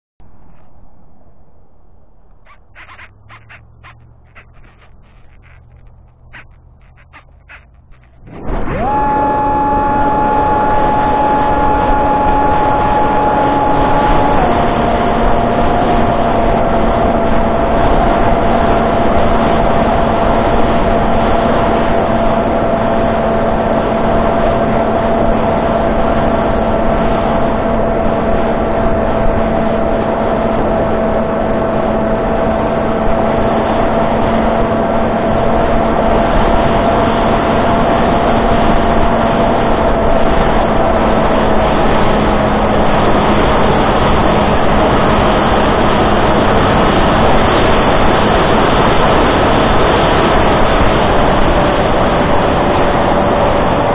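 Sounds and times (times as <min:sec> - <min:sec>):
rushing air noise: 0:00.2 - 0:17.5.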